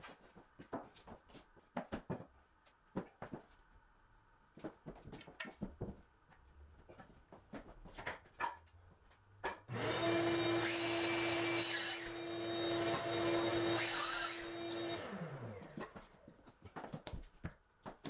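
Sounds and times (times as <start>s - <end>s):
electric motor humming: 9.7s - 15.6s.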